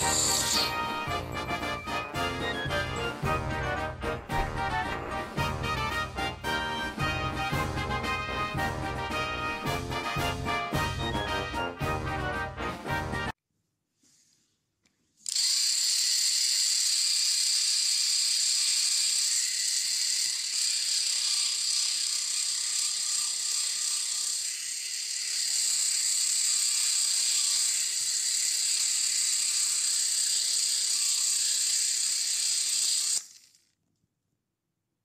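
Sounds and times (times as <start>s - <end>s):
toy train motor whirring: 0.0s - 1.4s, 15.2s - 33.8s.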